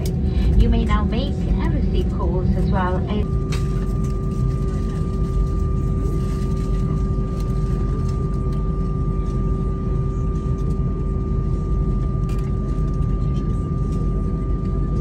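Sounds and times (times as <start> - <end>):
jet engines idling in cabin: 0.0 - 15.0.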